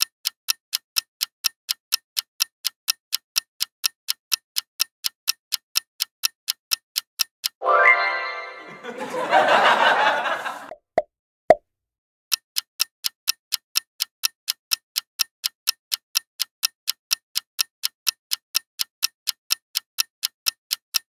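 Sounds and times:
clock ticking: 0:00.0 - 0:07.6, 0:12.3 - 0:21.0.

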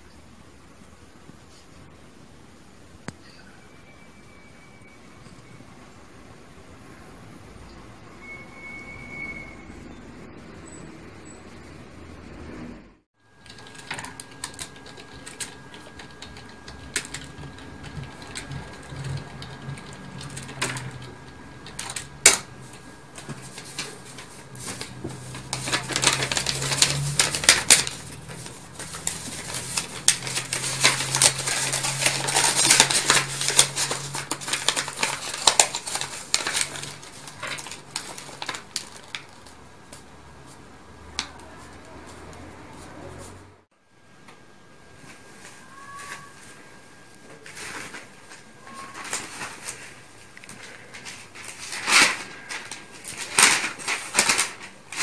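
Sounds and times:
paper crackling and rustling: 0:13.3 - 0:43.0, 0:47.2 - 0:55.0.

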